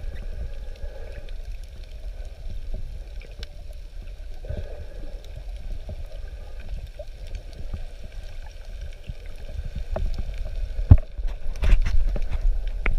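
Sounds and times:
small underwater clicks and knocks: 0.0s - 12.9s
underwater rumble of moving water: 0.0s - 12.9s.

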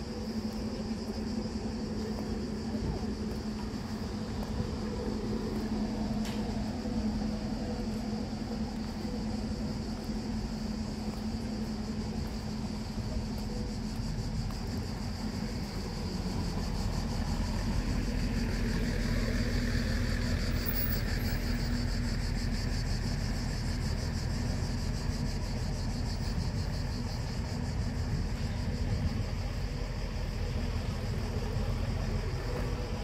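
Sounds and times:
bus diesel engine idling: 0.0s - 33.0s.

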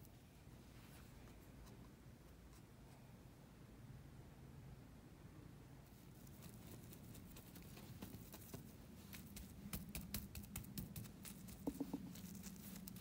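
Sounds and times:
hands tapping on dough block: 9.3s - 12.2s.

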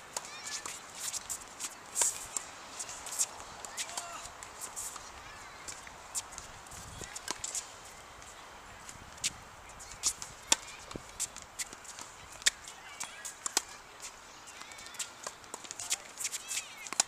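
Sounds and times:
rackets striking tennis ball: 0.1s - 7.7s, 9.9s - 17.0s
tennis ball bouncing: 0.1s - 7.7s, 10.0s - 13.8s.

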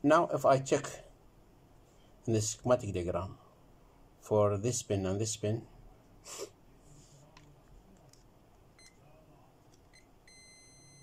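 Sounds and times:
multimeter continuity beeping: 8.7s - 9.1s, 9.9s - 11.0s.

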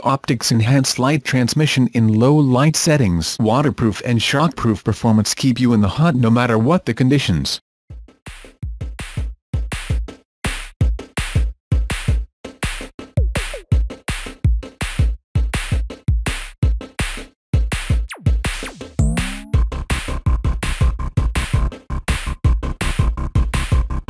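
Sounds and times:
drum machine beat: 7.9s - 24.0s
electronic pitch sweeps: 19.0s - 19.6s.

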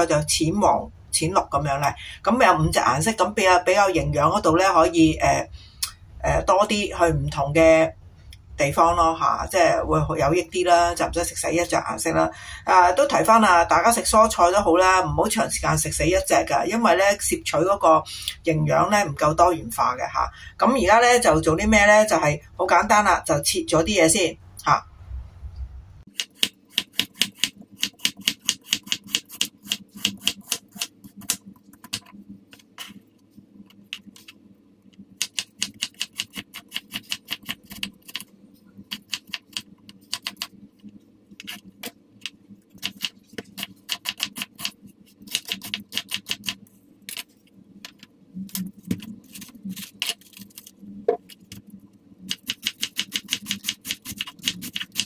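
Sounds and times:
knife chopping on wooden board: 26.1s - 32.1s.

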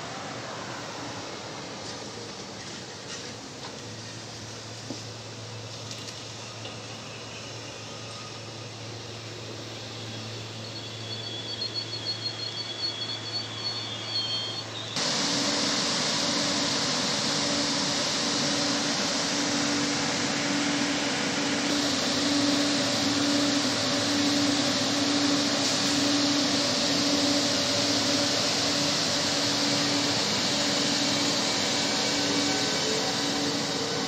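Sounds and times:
train fans rushing with low hum: 0.0s - 10.7s, 15.0s - 34.0s
train whining past: 13.2s - 34.0s.

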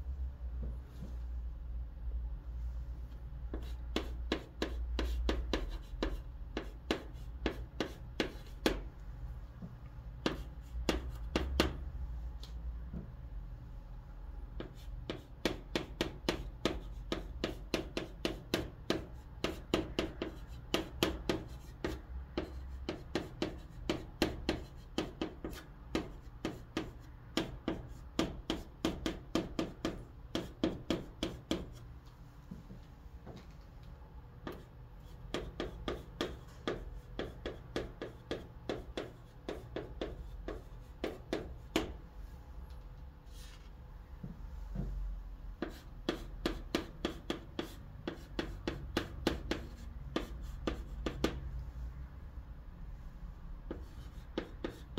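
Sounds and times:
chalk tapping and scraping on chalkboard: 3.4s - 8.9s, 9.6s - 13.1s, 14.6s - 31.9s, 34.4s - 42.0s, 43.3s - 45.0s, 45.6s - 51.5s, 53.7s - 54.9s.

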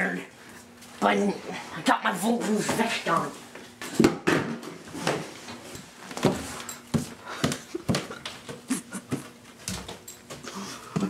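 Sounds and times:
footsteps climbing stairs: 6.1s - 11.0s.

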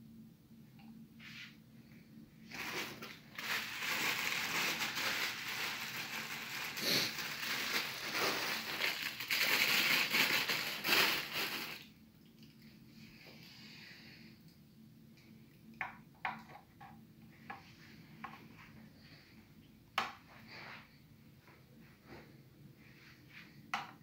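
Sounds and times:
crinkly wrapping rustling: 2.4s - 11.9s.

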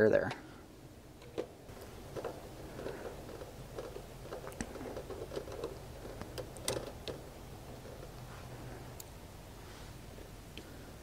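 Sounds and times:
wires being handled: 1.1s - 10.8s.

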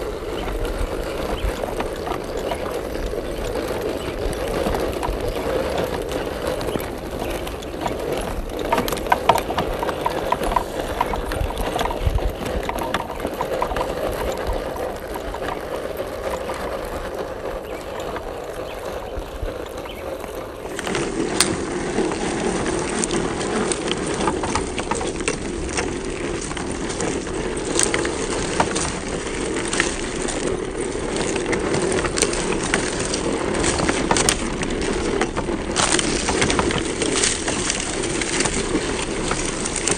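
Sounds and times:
tyres crunching over dirt: 0.0s - 39.9s.

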